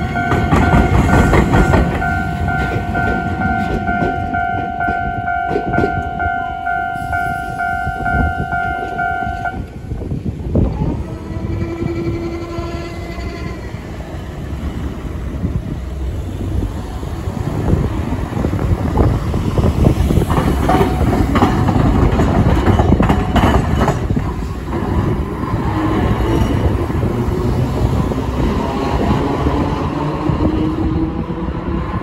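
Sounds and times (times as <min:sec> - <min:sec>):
wheels clacking over rail gaps: 0:00.0 - 0:10.0, 0:15.8 - 0:30.7
streetcar rumbling: 0:00.0 - 0:32.0.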